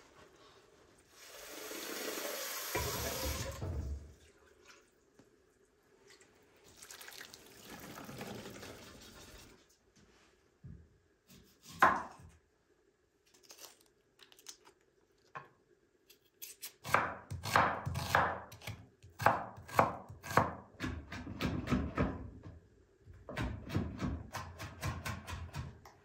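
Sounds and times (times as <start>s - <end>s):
knife chopping on wooden board: 11.6s - 12.2s, 16.9s - 22.1s.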